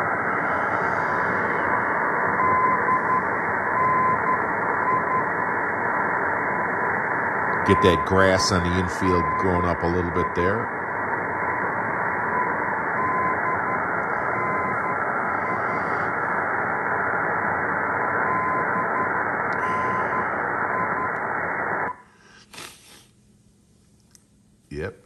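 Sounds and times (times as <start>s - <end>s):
faint radio tone: 0.0s - 22.7s, 24.7s - 25.0s
radio static and hiss: 0.0s - 23.1s.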